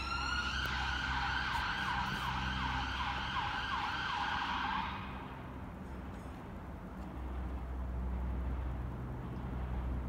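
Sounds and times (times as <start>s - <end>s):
emergency vehicle siren: 0.0s - 5.5s.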